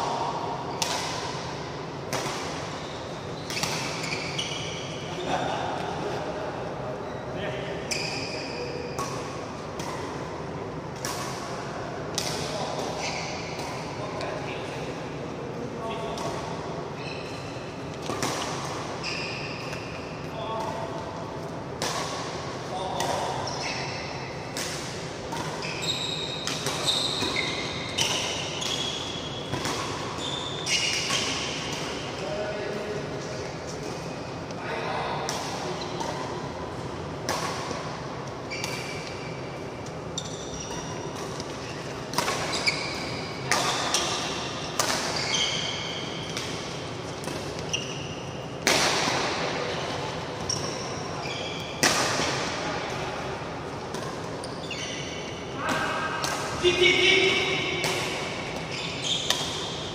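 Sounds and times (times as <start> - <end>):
court shoes squeaking: 0.1 - 6.2, 6.9 - 14.8, 15.8 - 59.9
rackets striking shuttlecock: 26.4 - 32.0, 37.2 - 39.2, 39.8 - 47.7, 48.5 - 49.7, 55.7 - 59.9.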